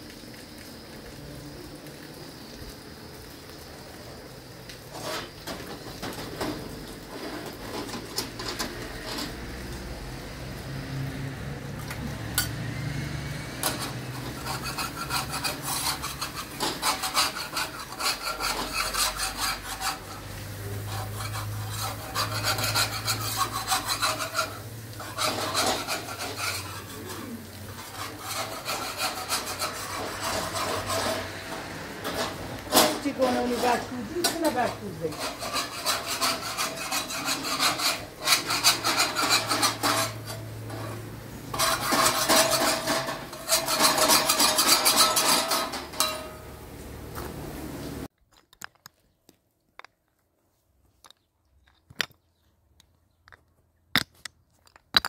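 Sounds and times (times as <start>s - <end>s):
scraping and rubbing strokes: 4.9s - 9.4s, 13.6s - 46.5s.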